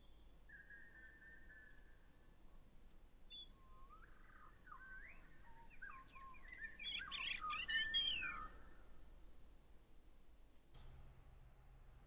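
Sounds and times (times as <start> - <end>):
songbird singing: 3.3 - 8.5, 10.8 - 12.0.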